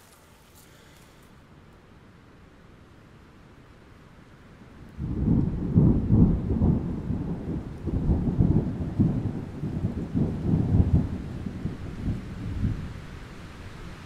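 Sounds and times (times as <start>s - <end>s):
deep rumbling storm: 4.6s - 14.0s.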